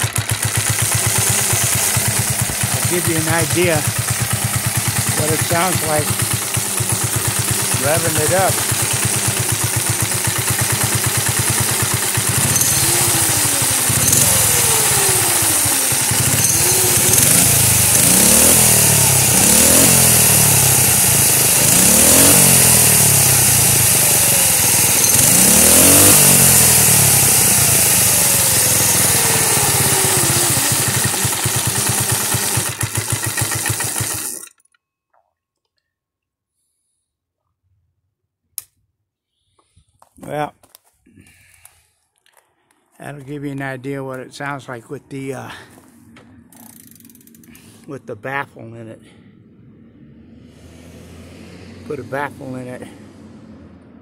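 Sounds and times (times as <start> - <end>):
small engine revving: 0.0 - 34.6, 45.5 - 47.9, 49.1 - 54.0.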